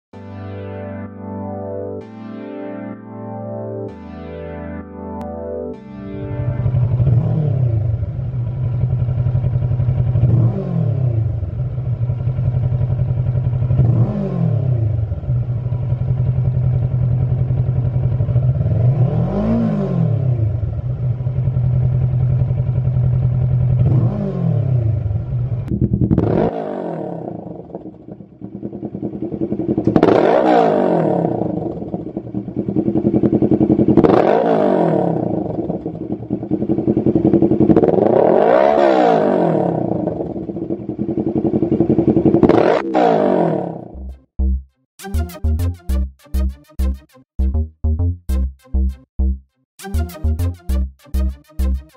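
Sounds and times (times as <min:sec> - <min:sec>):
motorcycle engine idling and revving: 0:06.4 - 0:44.6.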